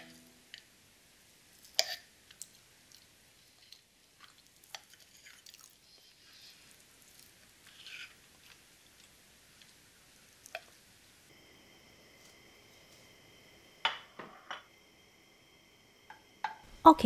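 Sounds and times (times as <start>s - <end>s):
fork cutting cheesecake: 1.8s - 2.0s.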